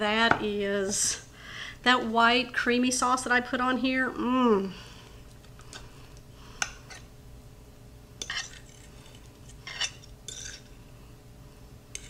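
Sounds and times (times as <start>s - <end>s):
fork clinking on a plate: 9.7s - 10.7s.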